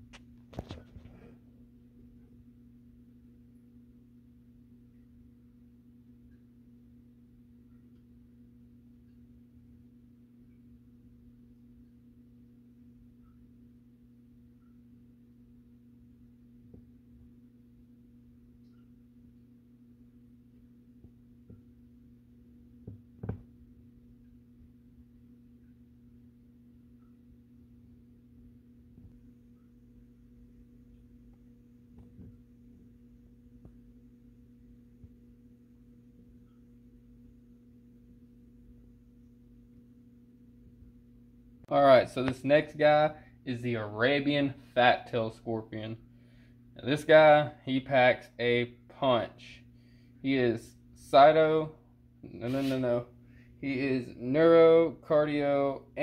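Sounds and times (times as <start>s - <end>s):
steady low hum: 0.0s - 56.0s
faint taps and clicks: 22.8s - 23.6s.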